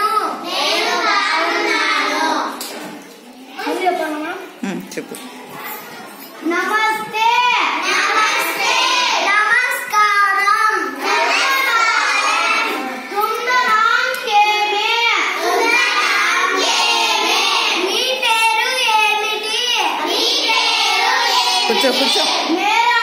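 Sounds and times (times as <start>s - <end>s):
children singing: 0.0s - 2.8s, 7.7s - 23.0s.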